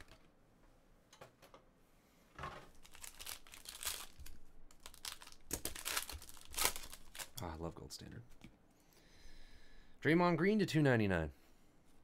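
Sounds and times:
foil wrapper crinkling and tearing: 2.7s - 7.5s.

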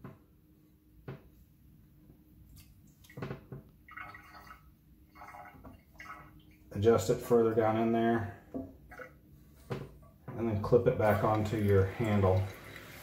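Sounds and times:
water gurgling in toilet tank: 3.1s - 9.3s, 10.3s - 13.0s.

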